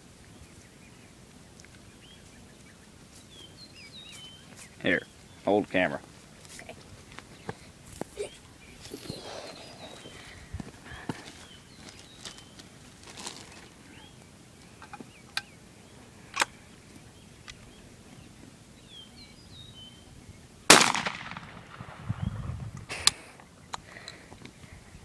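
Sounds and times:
shotgun clicks: 20.7 - 21.7
shotgun blast with echo: 20.7 - 22.2.

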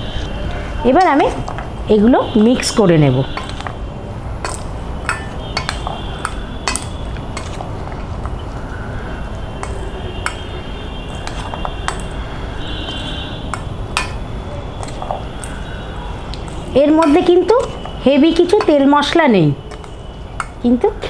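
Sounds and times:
metal spoon stirring in bowl: 2.6 - 3.8, 4.4 - 8.4, 9.6 - 12.2, 12.8 - 20.6
spoon clinking on steel bowl: 3.4 - 3.7, 4.4 - 7.6, 9.6 - 10.5, 11.1 - 12.2, 13.5 - 15.6, 16.4 - 18.9, 19.7 - 20.6.

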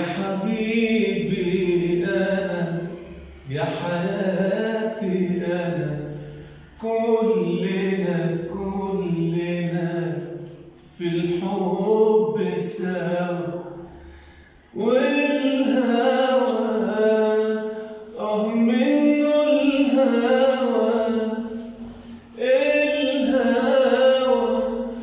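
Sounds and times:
man singing unaccompanied: 0.0 - 14.0, 14.7 - 25.0.

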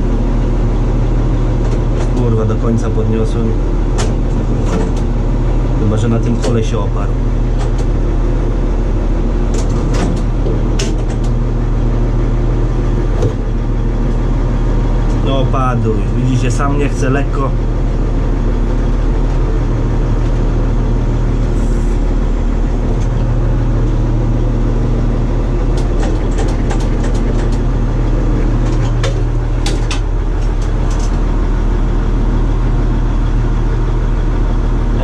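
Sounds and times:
diesel engine running at low revs: 0.0 - 35.0
hydraulic levers clicking and knocking: 3.9 - 5.1, 9.5 - 11.4, 25.6 - 31.2.

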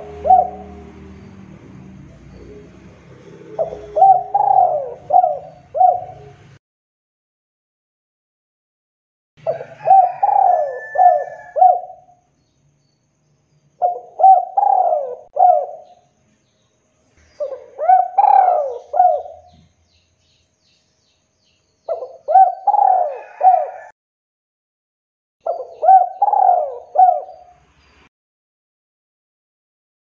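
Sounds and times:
dove cooing: 0.0 - 1.3, 2.0 - 6.6, 9.4 - 12.1, 13.8 - 16.0, 17.4 - 19.6, 21.9 - 23.9, 25.4 - 27.5.

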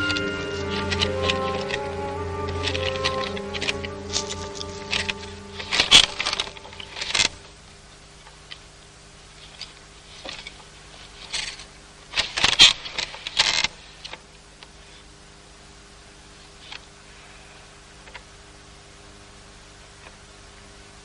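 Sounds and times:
wooden hand loom clattering: 0.0 - 7.4.

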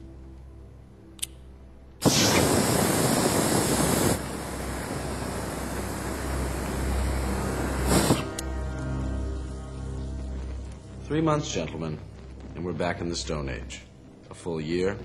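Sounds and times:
aerosol spray hissing: 2.0 - 8.5
whoosh of flame: 2.0 - 14.2
fire burning: 2.0 - 15.0.

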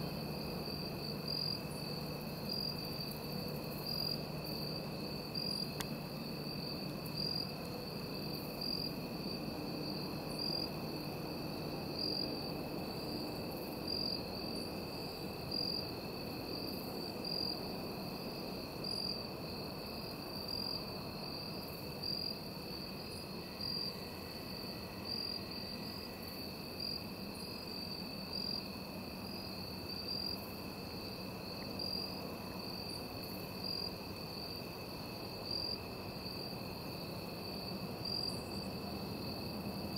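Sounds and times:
crickets trilling: 0.0 - 39.9
lower steady insect trill: 0.0 - 39.9.

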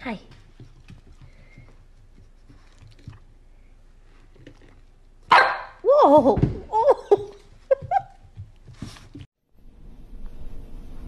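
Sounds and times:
dog barking and whining: 5.3 - 5.9.

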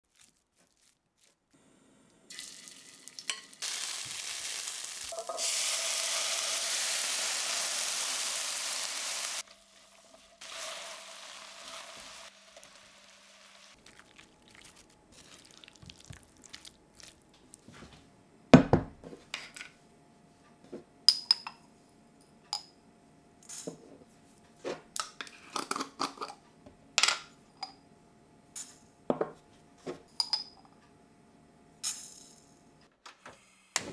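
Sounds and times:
food sizzling in a pan: 2.3 - 16.7
metal utensils clinking: 3.2 - 3.7.

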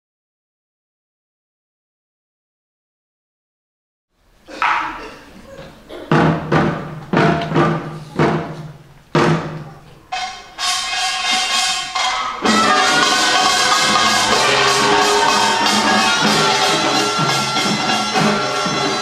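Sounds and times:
percussion band playing: 5.8 - 19.0
gong and drum strikes: 9.2 - 19.0.

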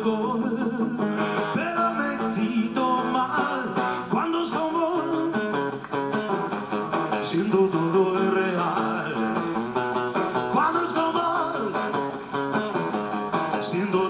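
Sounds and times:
man singing rock ballad: 0.0 - 5.5, 7.2 - 9.5, 10.3 - 12.0, 13.5 - 14.0
acoustic guitar strumming: 0.0 - 14.0.

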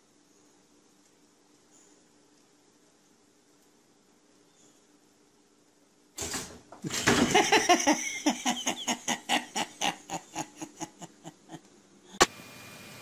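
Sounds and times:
person laughing hard: 6.9 - 11.7.

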